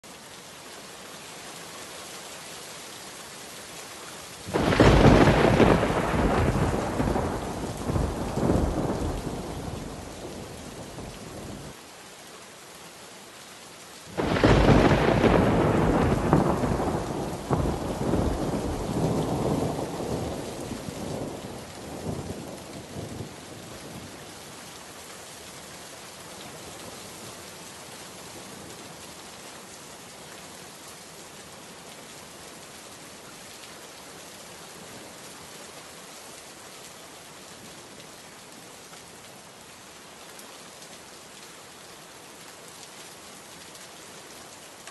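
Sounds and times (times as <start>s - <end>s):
steady rain: 0.0s - 44.9s
rolling thunder: 4.5s - 10.1s, 14.2s - 22.5s.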